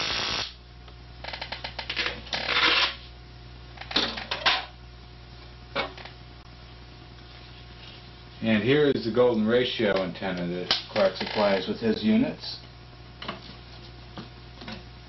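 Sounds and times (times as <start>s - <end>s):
spark-gap buzz: 0.0s - 0.6s
faint hum: 0.0s - 15.0s.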